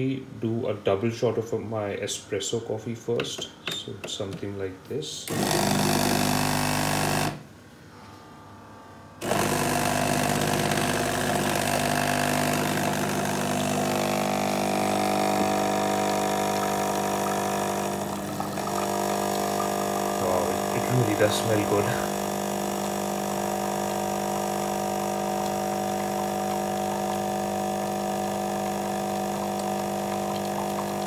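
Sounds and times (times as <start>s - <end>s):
espresso machine pump humming: 5.3s - 7.4s, 9.2s - 31.0s.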